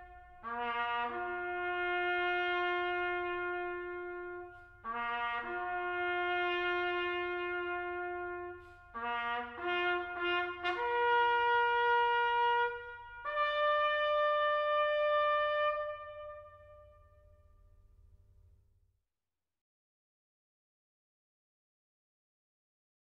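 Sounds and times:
bugle call: 0.0 - 17.4.

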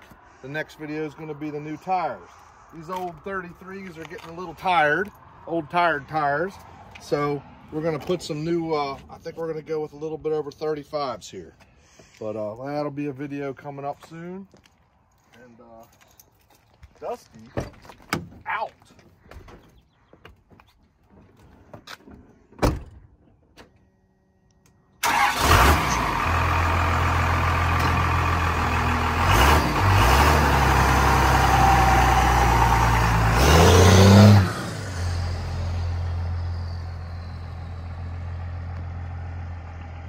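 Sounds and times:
truck door shutting: 22.6 - 23.1
diesel engine running: 25.0 - 40.0.

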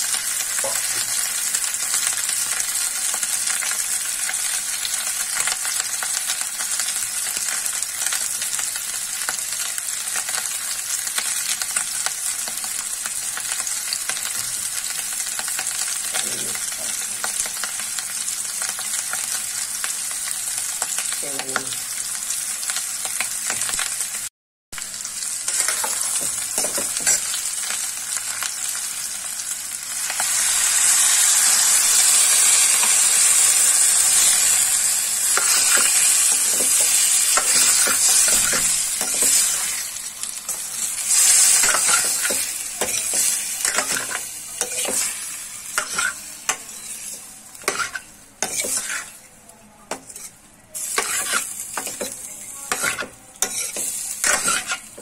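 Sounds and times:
potatoes sizzling in a pan: 0.0 - 55.0
metal ladle scraping a pan: 45.8 - 49.2, 50.9 - 51.5, 52.7 - 54.9.

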